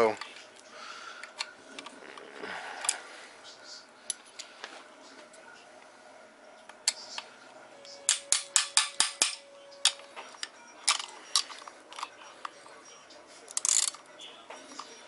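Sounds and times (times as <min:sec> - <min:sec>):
ratchet and sockets clicking: 0:13.5 - 0:14.0.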